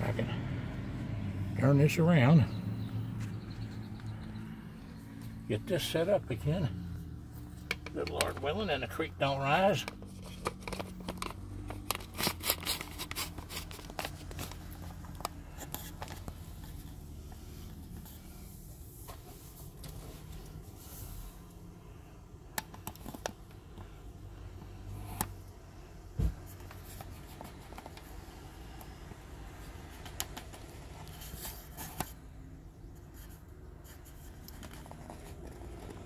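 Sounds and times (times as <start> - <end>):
phone handling clicks and knocks: 7.6 - 8.5.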